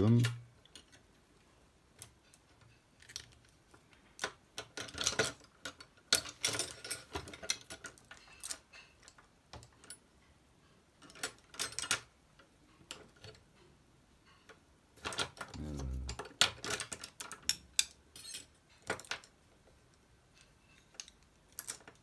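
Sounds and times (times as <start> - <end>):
painting supplies clicking and rattling: 0.0 - 22.0.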